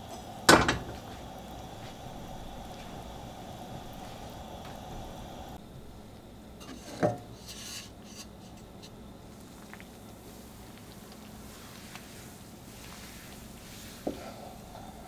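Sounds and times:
water bubbling in saucepan: 0.0 - 15.0
spoon stirring and scraping: 6.6 - 9.0.

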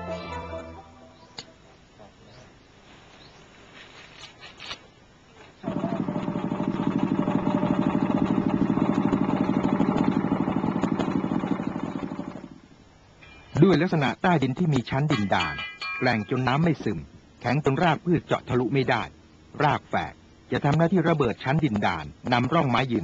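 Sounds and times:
faint rustling: 2.7 - 5.6
small engine running: 5.6 - 12.6.

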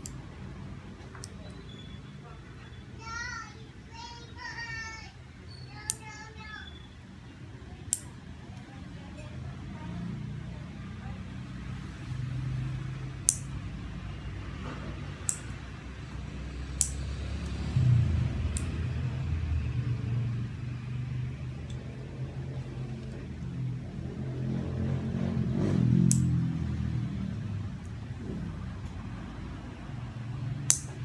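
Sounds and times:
nail clipper clicks: 13.2 - 13.5, 15.2 - 15.6, 16.8 - 17.6, 18.5 - 18.7, 26.1 - 26.4, 30.7 - 31.0
low rumble: 16.1 - 31.0.

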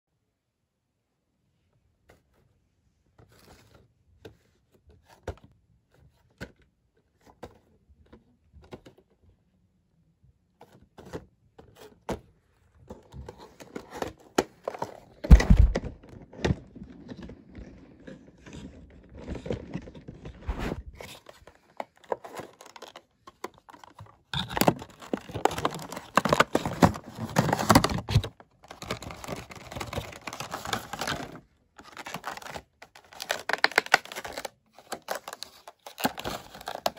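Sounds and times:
cardboard and plastic tearing crinkling: 13.3 - 36.9.

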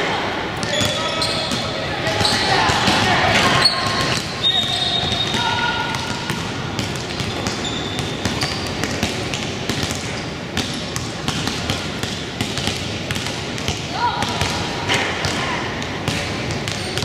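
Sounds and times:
gymnasium din: 0.0 - 17.0
sneaker squeaks: 0.6 - 10.8, 16.1 - 17.0
basketballs bouncing on wood floor: 0.6 - 17.0.

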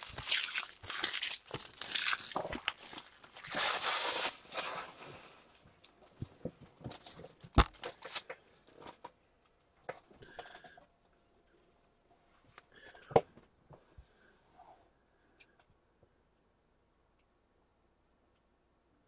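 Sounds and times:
crinkling of card pack wrappers: 0.0 - 5.0, 6.9 - 9.1.

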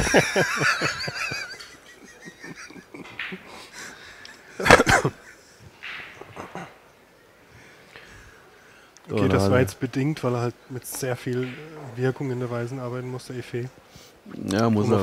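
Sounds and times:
men laughing: 0.0 - 6.8
pool cue striking ball: 5.8 - 6.4, 11.4 - 11.9.

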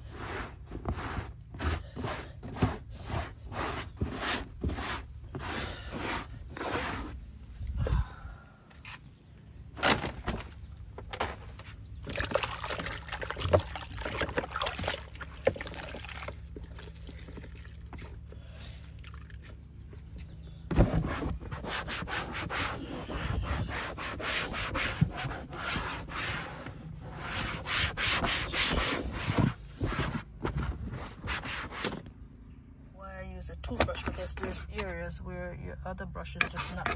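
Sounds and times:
rubbing and handling sounds: 0.0 - 7.6, 19.4 - 32.2, 33.6 - 35.2, 36.2 - 36.9.

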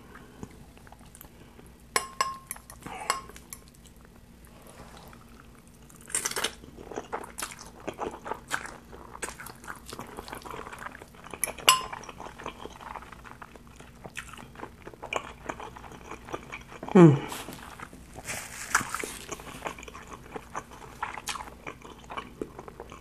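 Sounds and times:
fork clinking on glass bowl: 2.0 - 3.6, 11.4 - 12.1
chewing noodles: 2.7 - 23.0.

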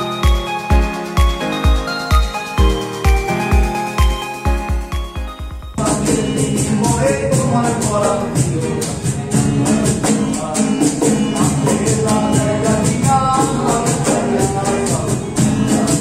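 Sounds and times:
cajon: 0.0 - 16.0
strummed acoustic guitar: 5.7 - 16.0
voices singing: 5.8 - 16.0.

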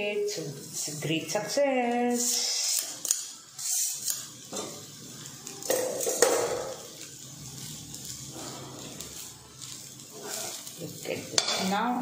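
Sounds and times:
metal spoon scraping rice in pan: 2.2 - 4.8, 7.5 - 11.8.

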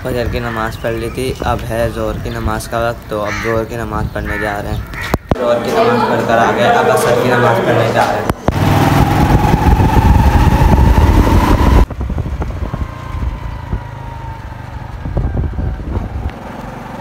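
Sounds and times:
loud rushing noise: 5.3 - 12.7
motorcycle engine running: 8.3 - 17.0.

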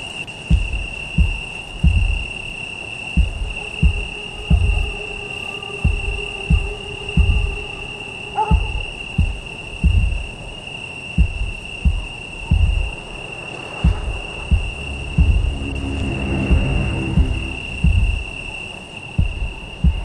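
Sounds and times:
crickets trilling: 0.0 - 20.0
low dull thumps: 0.5 - 2.4, 3.2 - 5.2, 5.8 - 7.8, 8.5 - 10.5, 11.2 - 13.1, 13.8 - 18.6.

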